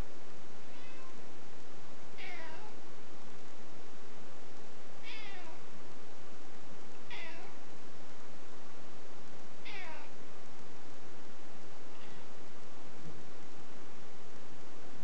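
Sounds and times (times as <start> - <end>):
cat meowing: 0.7 - 1.2, 2.2 - 2.8, 5.0 - 5.6, 7.1 - 7.6, 9.6 - 10.1.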